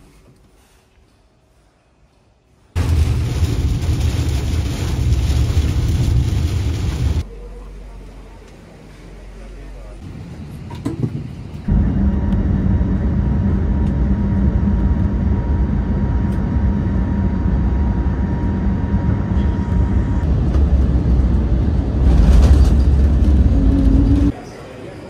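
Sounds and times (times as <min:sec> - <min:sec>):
vehicle interior rumble: 0:11.7 - 0:24.3.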